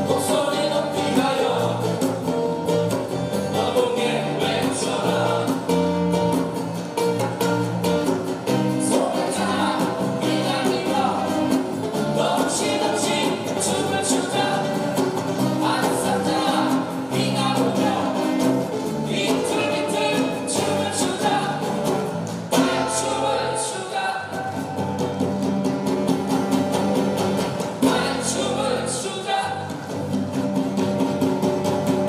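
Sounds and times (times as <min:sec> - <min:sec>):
person singing: 0:00.0 - 0:02.4, 0:03.5 - 0:06.3, 0:08.7 - 0:24.8, 0:27.8 - 0:29.8
bass guitar: 0:00.0 - 0:32.0
strummed acoustic guitars: 0:00.0 - 0:32.0.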